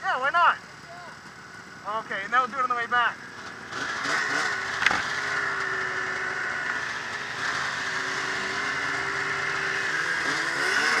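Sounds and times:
snowmobile engine running: 0.1s - 11.0s.

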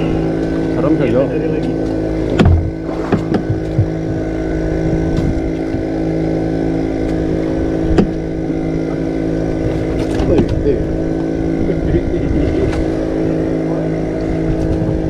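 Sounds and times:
boat motor drone: 0.0s - 15.0s
thump: 2.4s - 4.0s.

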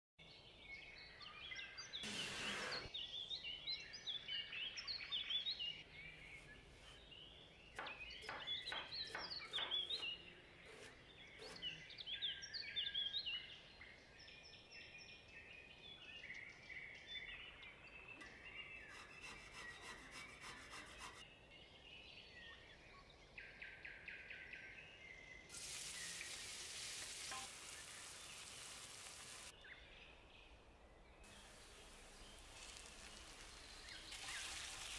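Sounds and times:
birds chirping and singing: 0.3s - 26.3s
onion sizzling in frying pan: 25.5s - 29.5s, 31.3s - 34.9s.

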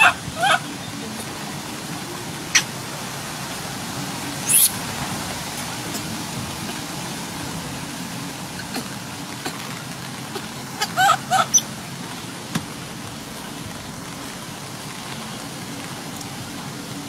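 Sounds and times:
baby monkey high calls: 0.0s - 0.7s, 2.5s - 2.7s, 4.4s - 4.8s, 10.3s - 11.7s.

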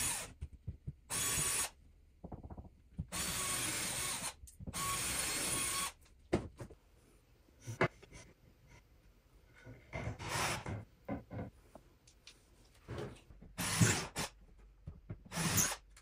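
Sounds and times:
cordless drill driving screws: 3.2s - 6.0s.

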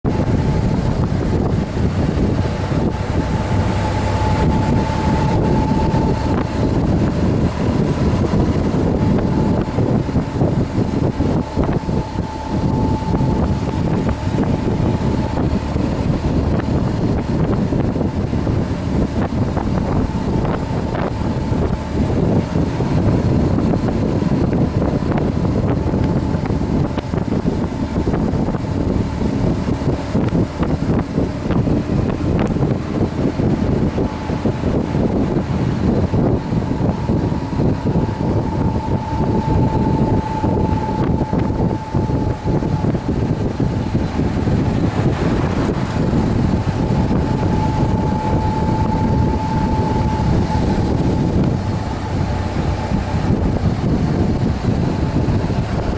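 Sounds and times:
motorcycle engine running: 0.0s - 55.9s
wind rush on microphone: 0.0s - 55.9s.

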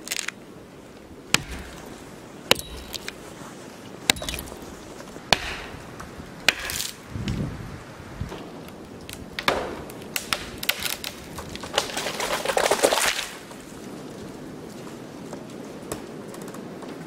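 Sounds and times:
tree trunk cracking: 0.0s - 7.4s, 8.3s - 14.0s
tree crashing into snow: 9.4s - 13.6s.

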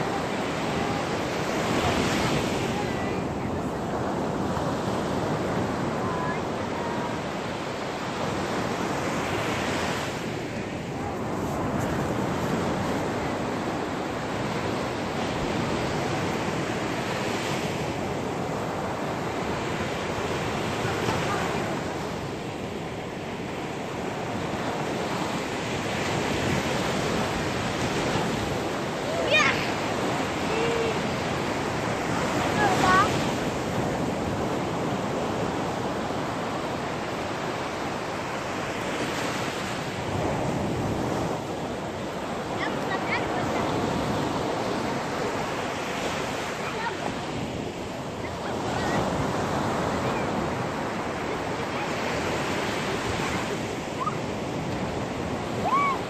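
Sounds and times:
sea surf breaking on beach: 0.0s - 56.0s
children's voices: 5.9s - 7.2s, 29.0s - 31.1s, 32.4s - 33.3s, 42.5s - 44.0s, 46.5s - 47.4s.

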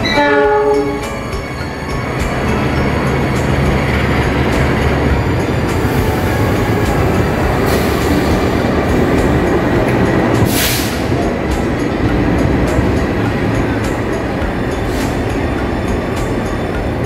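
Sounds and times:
diesel locomotive drone: 0.0s - 17.0s
short hiss: 10.5s - 11.1s.

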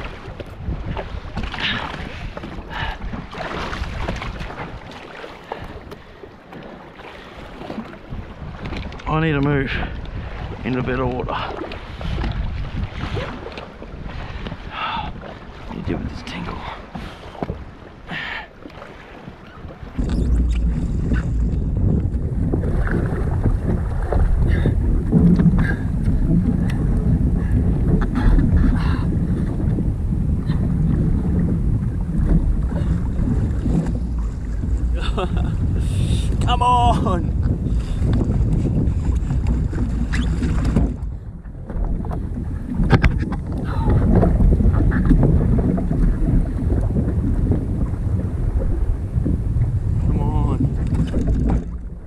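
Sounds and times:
wind rushing over microphone: 0.0s - 6.0s, 7.4s - 18.0s, 19.6s - 52.0s
water lapping against hull: 0.0s - 52.0s
small knocks and splashes: 3.3s - 6.7s.

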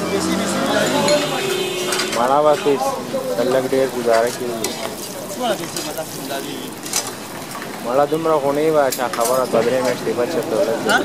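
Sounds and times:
man's voice: 0.0s - 4.6s
flatbread sizzling on a griddle: 0.0s - 11.0s.

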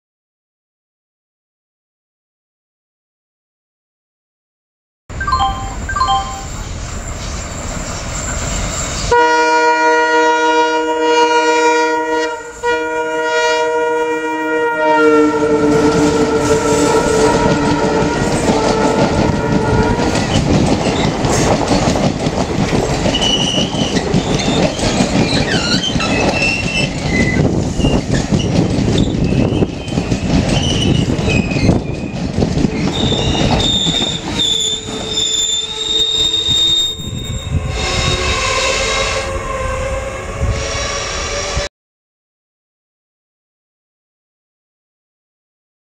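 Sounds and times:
wheels and brakes squealing: 6.4s - 9.1s, 23.1s - 39.7s
locomotive horn blast: 9.1s - 20.2s, 36.8s - 41.7s
coaches rattling over rail joints: 15.8s - 38.7s.

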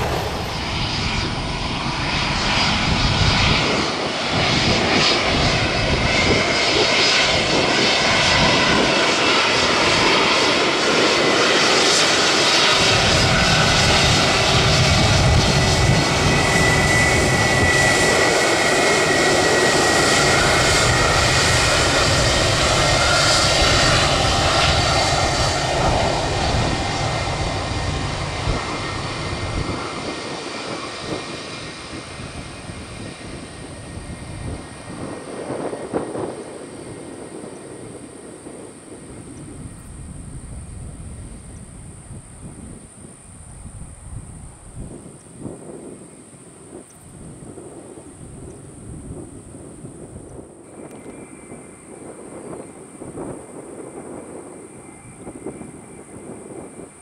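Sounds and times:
jet engines passing: 0.0s - 57.0s.

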